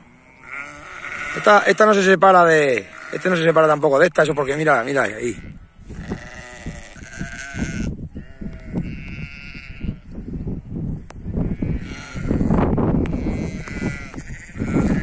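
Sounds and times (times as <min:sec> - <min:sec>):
sheep and lambs bleating: 0:00.0 - 0:15.0
low rumble on microphone: 0:05.4 - 0:15.0.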